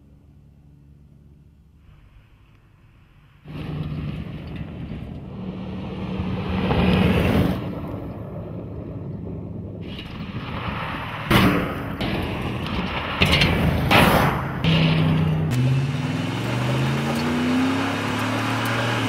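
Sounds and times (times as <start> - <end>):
tyres on gravel: 6.4 - 19.0
truck engine running hard: 14.4 - 19.0.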